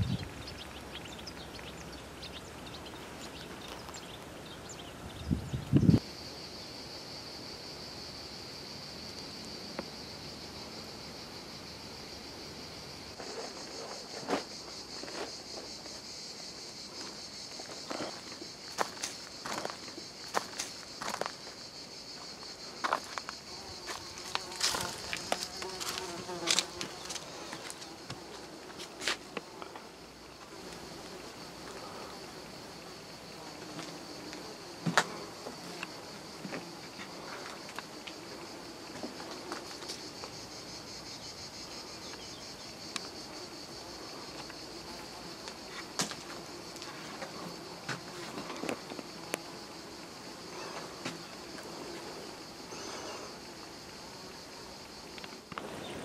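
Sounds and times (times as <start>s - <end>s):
high insect drone: 0.0s - 56.0s
footsteps on dirt and stone: 17.0s - 21.6s, 22.2s - 29.4s.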